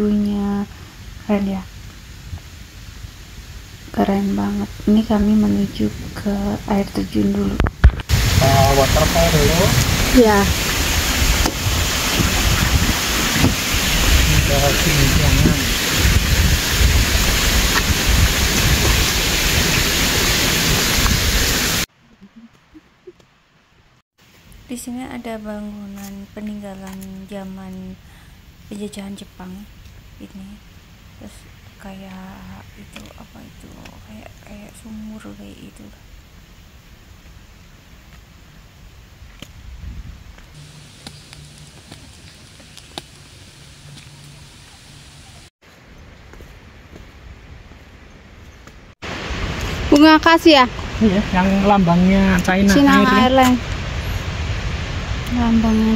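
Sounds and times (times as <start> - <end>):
wind buffeting microphone: 4.6 - 21.5, 39.5 - 41.0
footsteps on trail: 40.3 - 44.3, 45.6 - 48.8.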